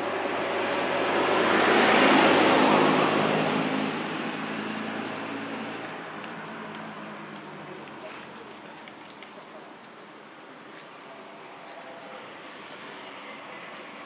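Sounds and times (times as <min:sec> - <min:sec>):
motor vehicle passing by: 0:00.0 - 0:08.4.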